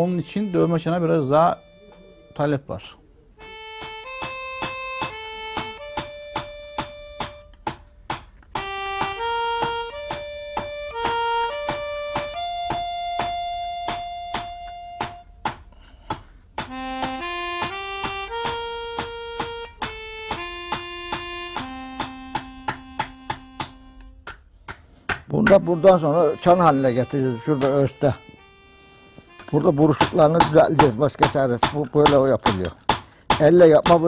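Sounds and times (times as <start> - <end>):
background music held notes: 0.0 - 15.6, 16.6 - 24.3, 25.3 - 32.7
hammer striking metal bell: 27.4 - 28.0, 29.4 - 34.0.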